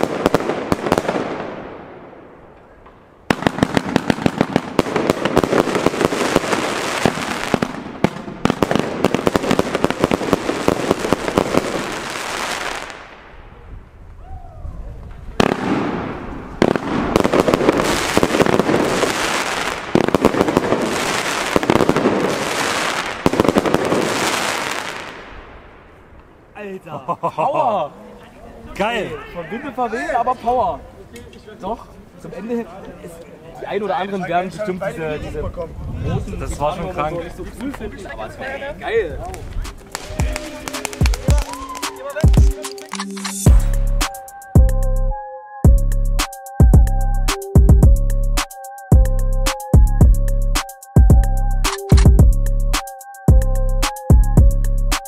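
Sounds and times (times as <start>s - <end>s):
firework battery cracks and bursts: 39.3s - 43.5s.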